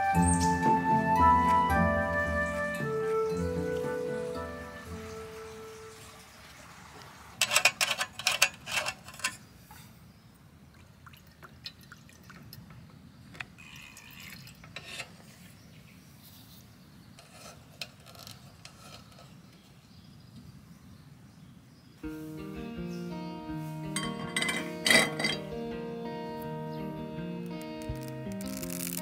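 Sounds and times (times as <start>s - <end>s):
fuel pouring: 10.8s - 12.7s, 13.5s - 14.7s, 27.6s - 29.0s
metal filler cap clicking: 24.0s - 25.6s.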